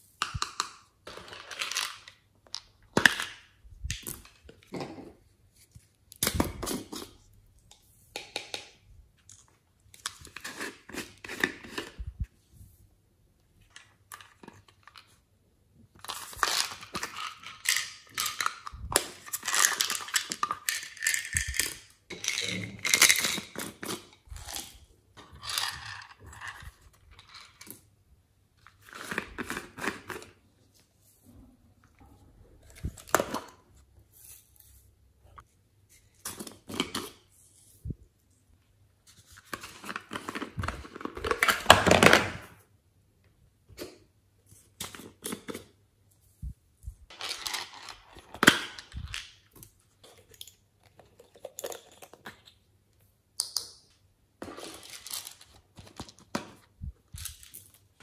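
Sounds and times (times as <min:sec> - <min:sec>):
plastic containers clicking and rattling: 0:00.2 - 0:05.2, 0:16.0 - 0:27.9, 0:39.5 - 0:42.5.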